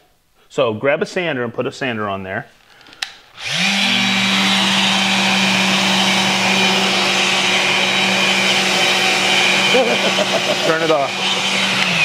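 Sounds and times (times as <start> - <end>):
orbital sander running: 3.4 - 12.0.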